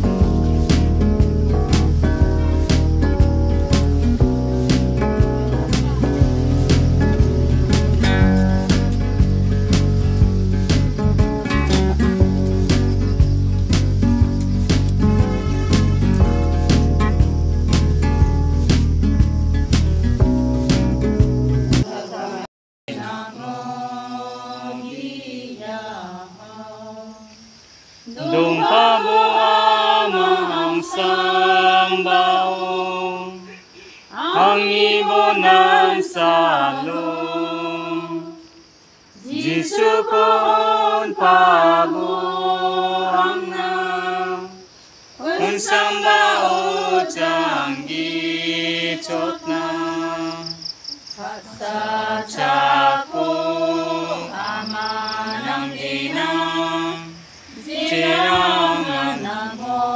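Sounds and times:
women singing a hymn: 0:21.8 - 0:38.6, 0:39.2 - 0:50.6, 0:51.2 - 0:59.9.

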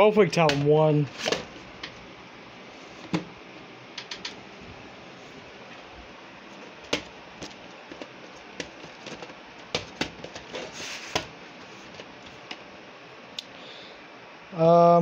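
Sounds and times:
cassette sliding out of sleeve: 0:01.1 - 0:02.0, 0:06.5 - 0:12.6
plastic cassette clicks and taps: 0:06.9 - 0:10.4.

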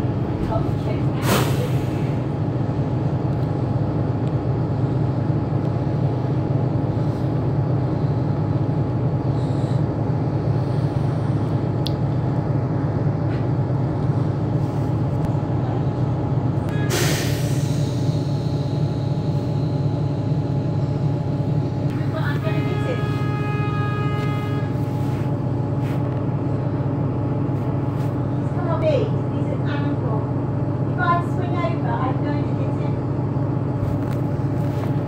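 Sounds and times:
bus engine droning: 0:00.0 - 0:35.0
rustling noise: 0:24.2 - 0:26.2, 0:27.5 - 0:28.2, 0:33.8 - 0:35.0.

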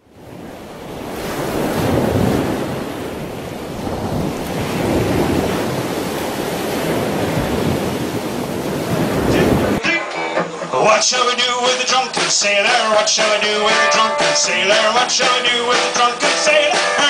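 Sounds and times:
wind: 0:00.0 - 0:09.8
sea waves washing: 0:00.0 - 0:17.0.

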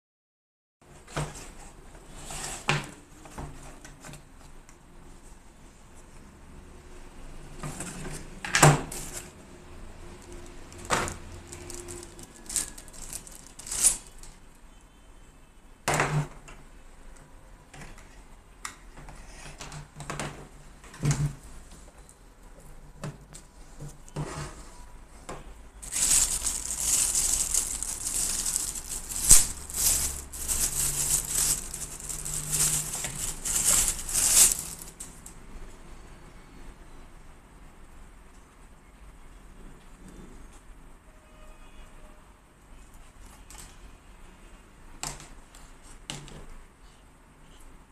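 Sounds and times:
plastic bag crinkling: 0:10.1 - 0:14.4, 0:25.8 - 0:35.2.

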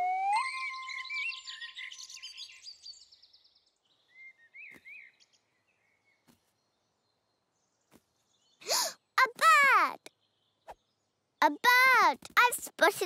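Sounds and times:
faint cartoon bird tweets: 0:00.0 - 0:07.5.

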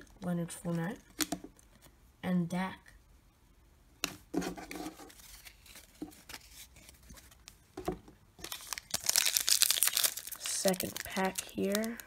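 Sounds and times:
trading cards being handled: 0:04.6 - 0:12.0
foil wrapper crinkling: 0:08.4 - 0:12.0.

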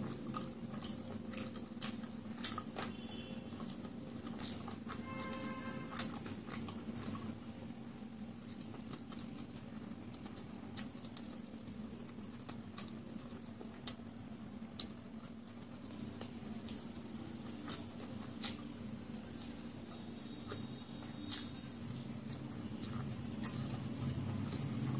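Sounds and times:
chewing and wet mouth clicks: 0:00.0 - 0:05.0, 0:05.9 - 0:07.4, 0:08.4 - 0:14.0, 0:14.7 - 0:16.8, 0:17.5 - 0:24.9
faint high whine: 0:15.9 - 0:24.9.

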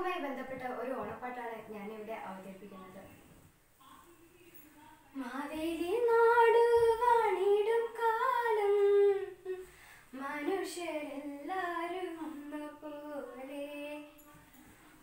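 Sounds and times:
singer breathing: 0:09.6 - 0:10.2.

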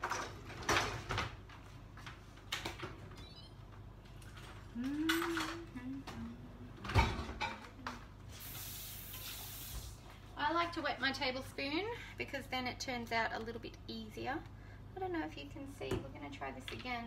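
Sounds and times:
soft hiss: 0:08.3 - 0:10.4.

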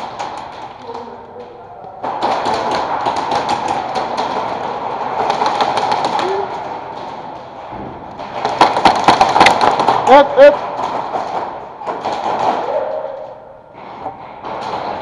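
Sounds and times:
airsoft guns firing: 0:02.0 - 0:07.4, 0:08.1 - 0:12.8.

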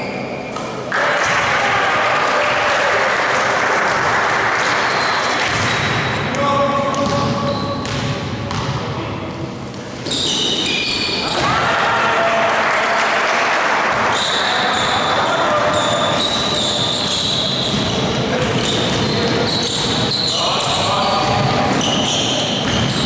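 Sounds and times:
people shouting in a gym: 0:00.9 - 0:03.4, 0:10.2 - 0:23.0
sneakers squeaking: 0:04.8 - 0:08.9, 0:09.7 - 0:11.6, 0:13.9 - 0:23.0
ball bouncing on hardwood court: 0:05.4 - 0:08.9, 0:15.7 - 0:20.0, 0:20.6 - 0:23.0.

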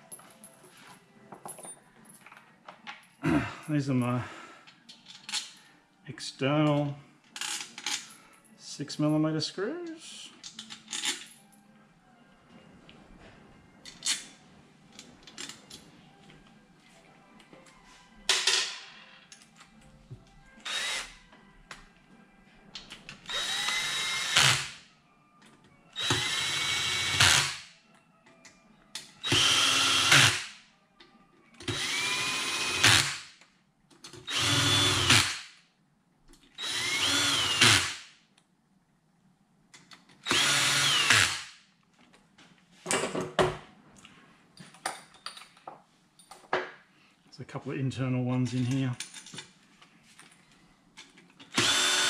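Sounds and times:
cordless drill spinning: 0:20.6 - 0:21.1, 0:23.3 - 0:24.6, 0:26.0 - 0:27.5, 0:29.2 - 0:30.3, 0:31.7 - 0:33.0, 0:34.3 - 0:35.2, 0:36.6 - 0:37.9, 0:40.2 - 0:41.4, 0:51.5 - 0:52.0.

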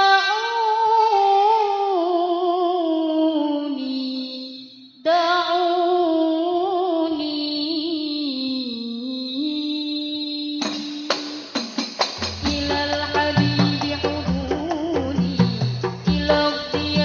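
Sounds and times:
person singing: 0:00.0 - 0:11.2, 0:12.4 - 0:17.0
frame drums: 0:10.6 - 0:17.0.

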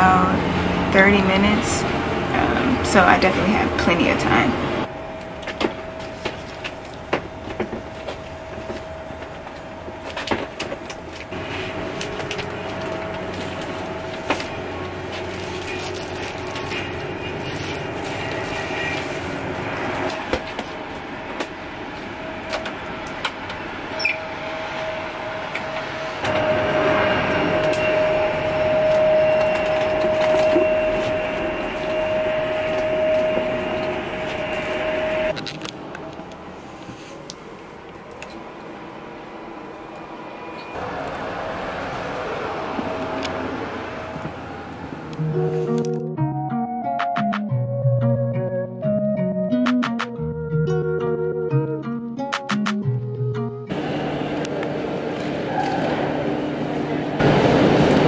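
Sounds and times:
aircraft air system whine: 0:00.0 - 0:47.5, 0:53.7 - 0:58.0
clicks and knocks of galley carts: 0:25.6 - 0:35.3, 0:53.8 - 0:56.4, 0:57.2 - 0:58.0.

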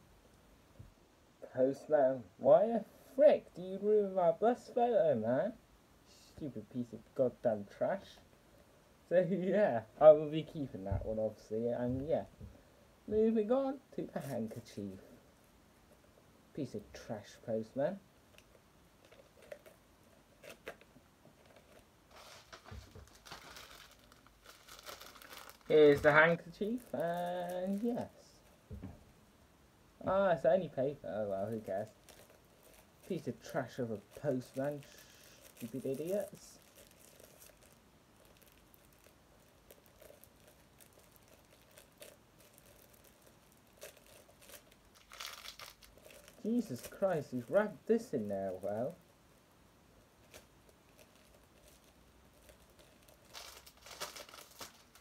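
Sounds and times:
paper rustling: 0:20.4 - 0:28.1, 0:31.2 - 0:49.0, 0:50.2 - 0:55.0.

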